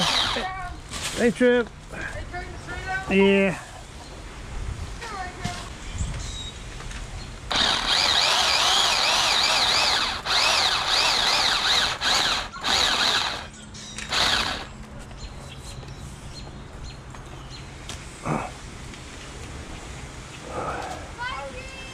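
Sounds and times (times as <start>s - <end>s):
electric pole saw cutting wood: 0.0s - 0.5s, 7.5s - 14.7s.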